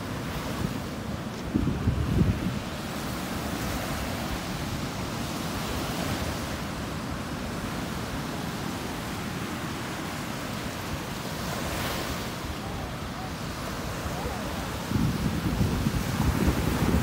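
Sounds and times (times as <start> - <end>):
ocean surf breaking: 0.0 - 17.0.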